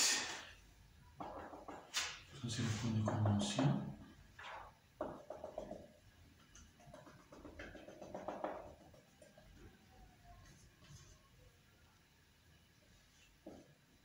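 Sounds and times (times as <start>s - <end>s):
marker squeaking on whiteboard: 6.6s - 11.2s.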